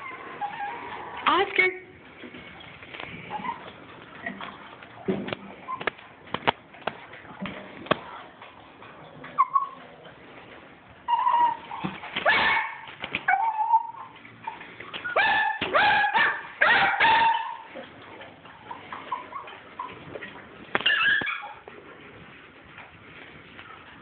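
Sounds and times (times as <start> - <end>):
small dogs yipping and barking: 0.0 - 1.2, 3.3 - 3.8, 9.3 - 9.9, 11.0 - 17.8, 18.5 - 20.1, 20.8 - 21.7.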